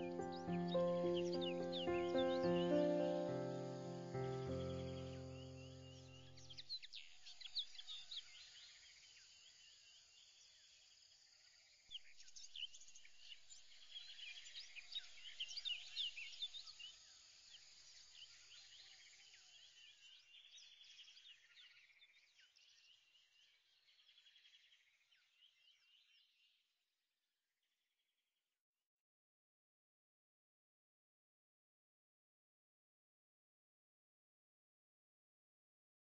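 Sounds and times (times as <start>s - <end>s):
birds chirping and trilling: 0.0s - 8.7s.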